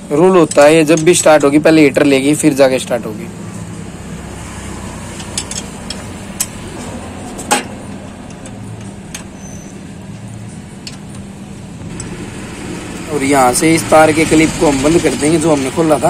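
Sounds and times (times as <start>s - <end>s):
spanner clicking on metal: 0.3s - 1.8s, 5.1s - 6.6s, 7.4s - 11.3s, 11.9s - 12.2s
steady low hum: 1.8s - 15.7s.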